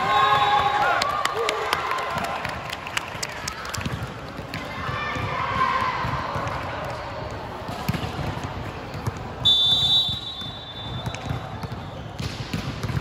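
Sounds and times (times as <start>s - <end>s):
volleyball bouncing: 3.8s - 13.0s
referee's whistle: 9.4s - 12.2s.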